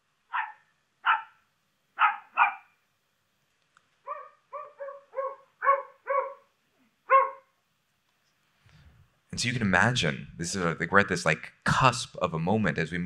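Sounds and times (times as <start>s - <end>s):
dog barking harshly: 0.3s - 1.4s, 2.0s - 2.8s, 4.1s - 6.5s, 7.1s - 7.5s
dog with tonal bark: 0.3s - 1.4s, 2.0s - 2.7s, 4.1s - 7.5s.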